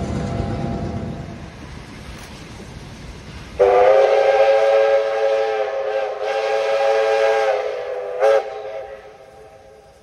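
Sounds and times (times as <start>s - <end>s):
steam locomotive whistle: 3.6s - 10.0s.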